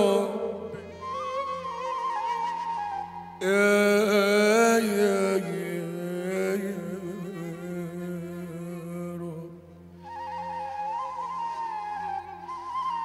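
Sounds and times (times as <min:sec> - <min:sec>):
man singing into a microphone: 0:00.0 - 0:01.0, 0:03.4 - 0:09.8
instrumental melody: 0:00.0 - 0:04.4, 0:07.1 - 0:13.0.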